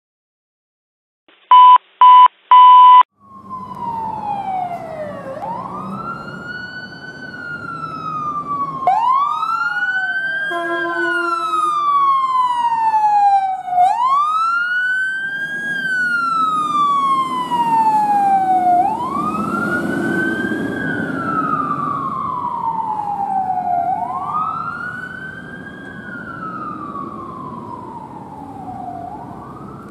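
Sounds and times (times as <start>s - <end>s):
loud beeps: 1.5s - 3.0s
fire engine siren wailing: 3.2s - 29.9s
truck engine rumble: 3.2s - 29.9s.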